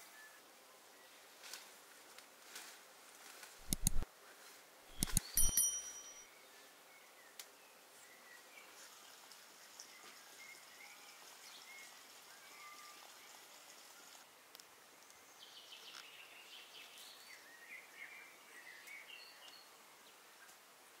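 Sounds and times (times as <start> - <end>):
short metallic ring: 4.9 - 6.3.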